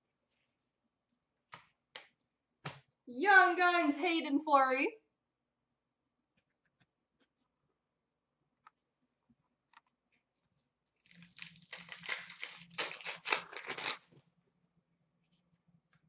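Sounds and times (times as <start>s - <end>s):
foil wrapper tearing and crinkling: 11.0s - 14.2s.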